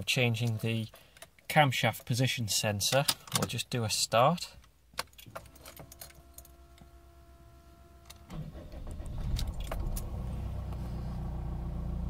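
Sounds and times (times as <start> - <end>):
keys clicking in ignition: 5.0 - 6.6, 8.0 - 10.1
faint steady whine: 5.4 - 11.7
diesel engine starting and idling: 7.2 - 12.0.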